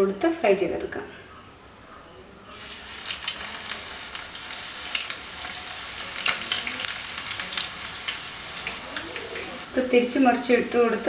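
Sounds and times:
batter frying in hot oil: 2.5 - 11.0.

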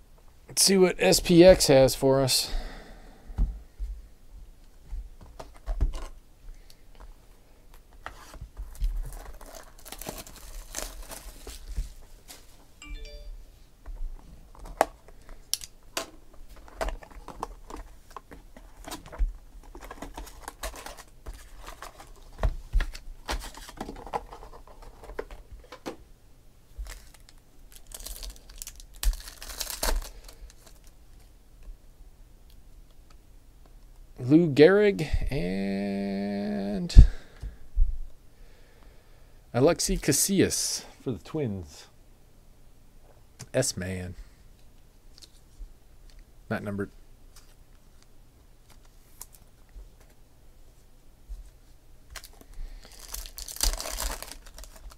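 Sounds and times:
foil wrapper crinkling and tearing: 8.7 - 11.8, 18.7 - 25.1, 26.8 - 31.0, 52.1 - 54.9.

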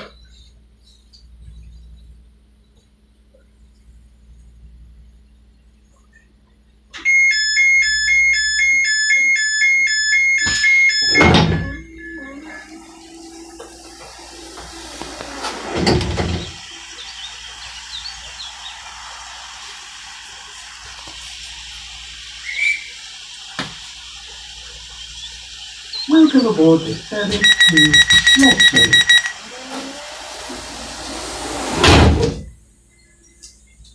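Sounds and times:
two-note warning beep: 7.0 - 13.1, 27.3 - 29.4
low hum of doors sliding: 10.6 - 17.1, 29.2 - 32.6.

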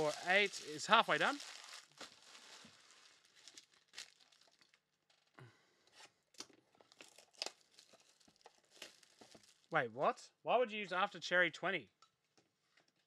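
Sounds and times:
plastic wrap ripping: 0.0 - 5.3, 6.8 - 9.7
plastic wrap crinkling: 0.0 - 5.4, 6.7 - 9.8.

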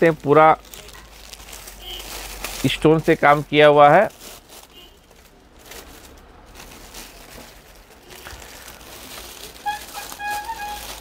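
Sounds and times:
purse rustling and crinkling: 0.0 - 11.0
high-pitched held notes: 9.5 - 11.0.

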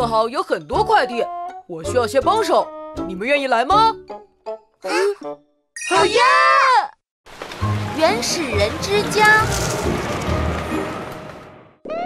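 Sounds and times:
cartoon music: 4.9 - 6.3
rain hissing: 7.3 - 11.6.

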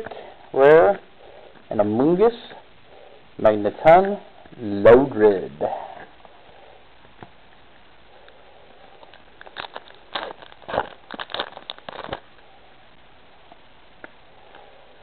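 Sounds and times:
foil wrapper crinkling and tearing: 9.0 - 12.4.

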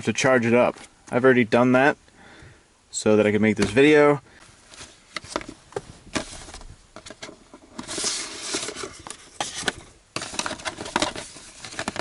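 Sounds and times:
rustling: 3.6 - 12.0
plastic pack set down: 4.7 - 12.0.

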